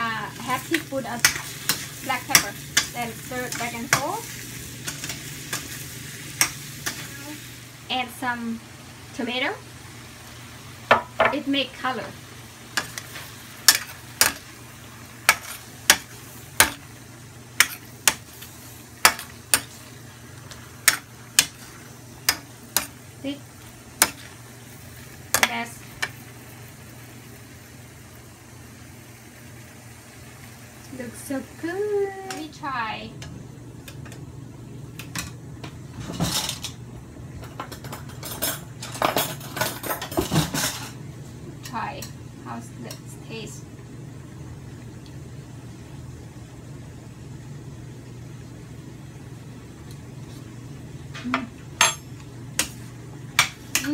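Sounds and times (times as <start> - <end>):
spatula clacking on steel skillet: 1.2 - 4.1, 6.4 - 7.0, 12.8 - 14.4, 15.2 - 16.8, 17.6 - 18.4, 19.0 - 19.8, 20.8 - 23.0, 24.0 - 24.3
kitchenware clinking and knocking: 37.4 - 40.9.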